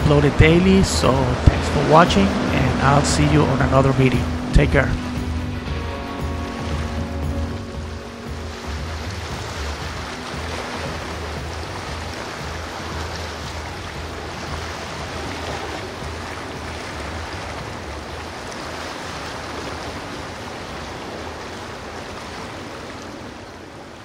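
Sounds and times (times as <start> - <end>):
low rumble: 0.0 - 18.4
waves and surf rushing: 0.0 - 24.0.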